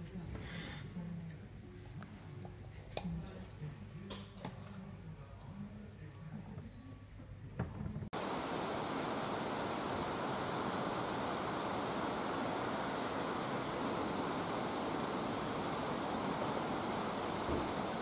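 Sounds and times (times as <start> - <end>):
waterfall rushing: 8.2 - 18.0.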